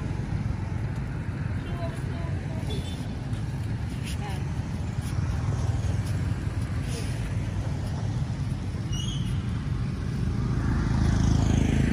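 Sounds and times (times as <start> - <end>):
faint high chirp: 8.9 - 9.5.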